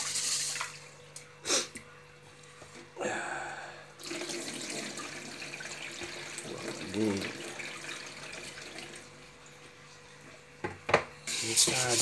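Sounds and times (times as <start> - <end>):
tap water running: 0.0 - 1.0, 4.0 - 9.8
water splashing into sink: 4.0 - 9.1.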